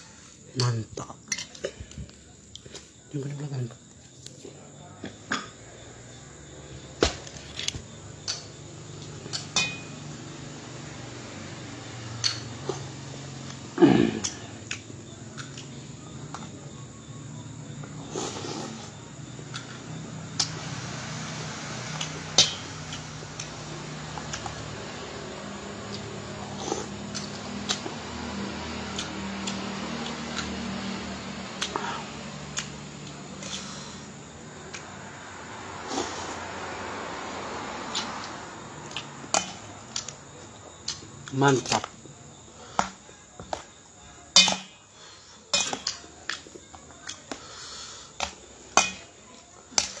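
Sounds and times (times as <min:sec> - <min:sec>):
spoon clinking on metal basin: 0:09.4 - 0:10.0.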